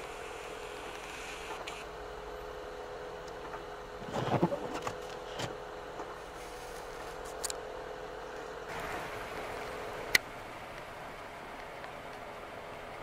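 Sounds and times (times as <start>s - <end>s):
car cabin hum: 3.9s - 6.3s
knocking and rubbing: 4.0s - 5.6s.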